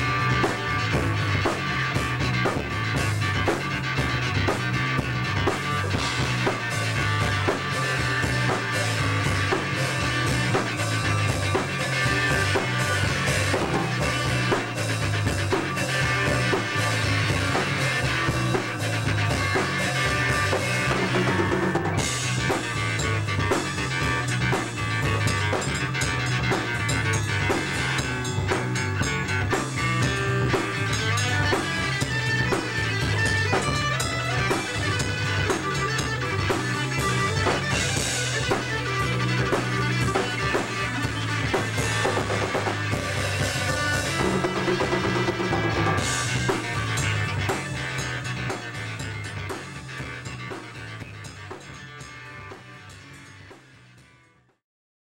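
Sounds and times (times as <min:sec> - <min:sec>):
keyboard: 0:00.0 - 0:54.4
drum kit: 0:00.0 - 0:54.6.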